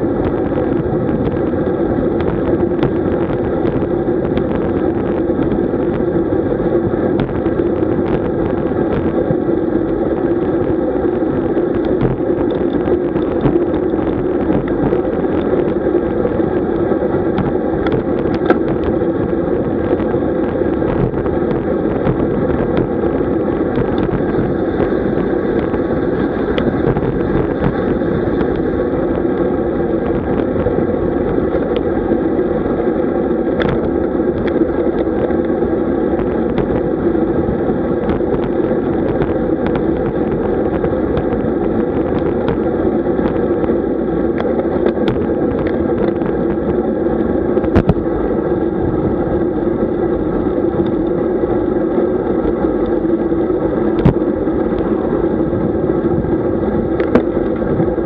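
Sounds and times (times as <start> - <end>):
road noise: 0.0 - 58.0
wind rush: 0.0 - 58.0
sharp clicks and knocks: 17.3 - 18.9.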